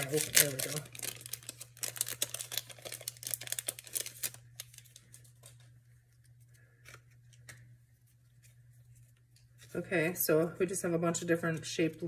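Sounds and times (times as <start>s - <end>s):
plastic packet crinkling: 0.0s - 7.6s.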